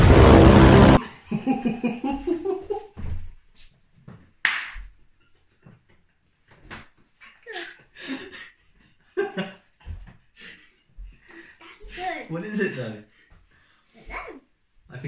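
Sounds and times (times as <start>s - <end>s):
laughter: 1.0s - 3.0s, 7.4s - 10.9s
sharp slap: 4.4s - 4.8s.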